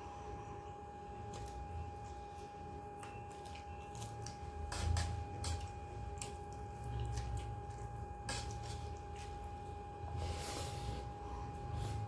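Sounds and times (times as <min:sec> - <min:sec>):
faint steady hum: 0:00.0 - 0:12.0
chewing with wet mouth smacks: 0:01.2 - 0:09.8.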